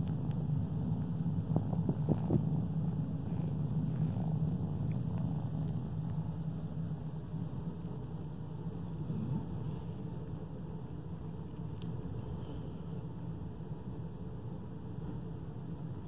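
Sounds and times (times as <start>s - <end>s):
kitten purring: 0.0s - 10.2s.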